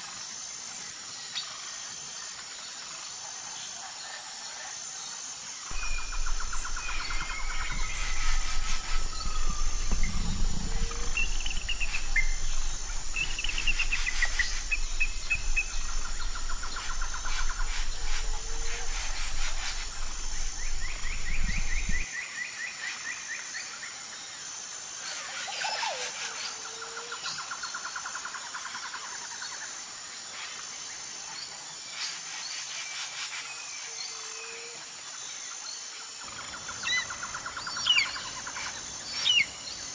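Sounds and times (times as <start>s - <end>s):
low rumble: 5.7s - 22.0s
small birds chirping and trilling: 5.7s - 22.0s.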